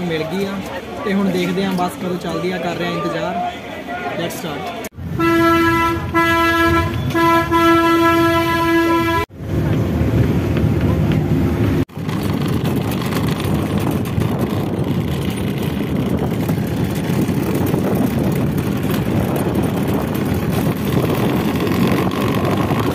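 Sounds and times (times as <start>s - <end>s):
road and wind noise: 0.0s - 22.9s
scooter engine running: 9.6s - 22.9s.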